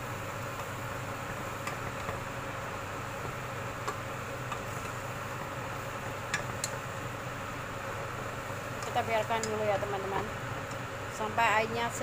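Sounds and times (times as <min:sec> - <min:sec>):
vegetables hissing in a wok: 0:02.3 - 0:09.3.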